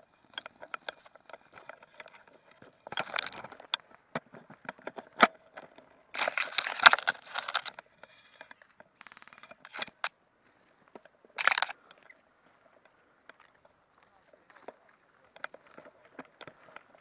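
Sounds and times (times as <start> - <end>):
rustling: 0.0 - 17.0
sharp clicks and snaps: 0.3 - 10.1, 11.0 - 12.2.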